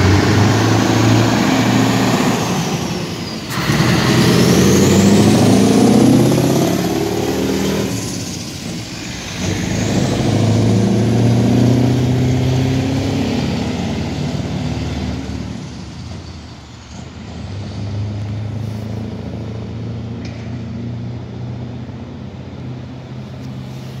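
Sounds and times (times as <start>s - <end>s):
truck engine exhaust: 0.0s - 24.0s.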